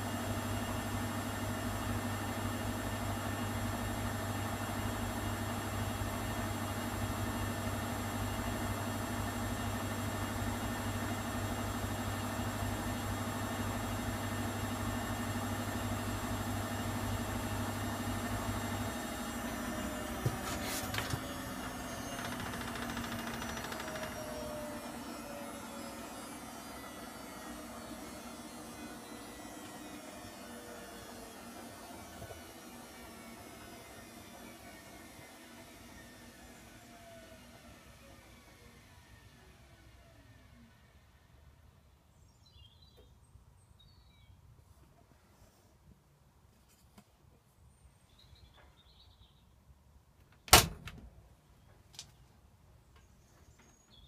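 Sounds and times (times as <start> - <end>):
washing machine spinning: 0.0 - 39.4.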